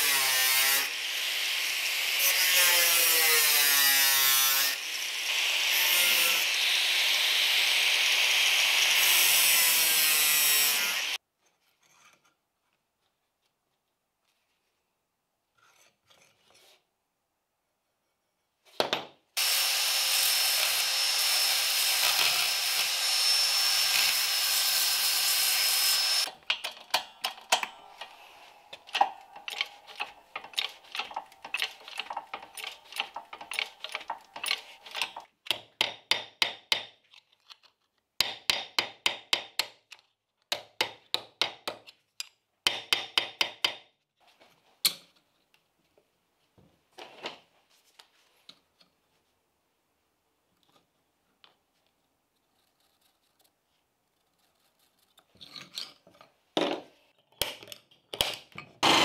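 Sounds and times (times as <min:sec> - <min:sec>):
belt sander grinding steel: 0:00.0 - 0:11.2, 0:19.4 - 0:26.4, 0:27.1 - 0:35.2.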